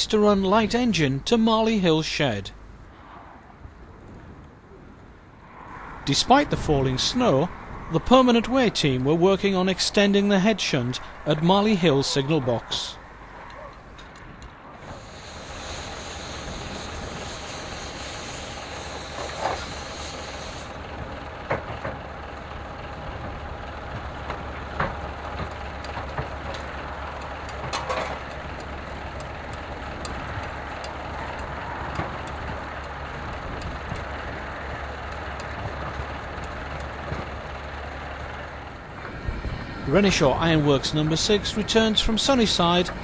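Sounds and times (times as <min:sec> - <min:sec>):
diesel locomotive engine running: 0:00.0 - 0:03.0, 0:03.7 - 0:43.0
high hiss: 0:14.8 - 0:20.8
metallic clanks and knocks: 0:27.5 - 0:28.4.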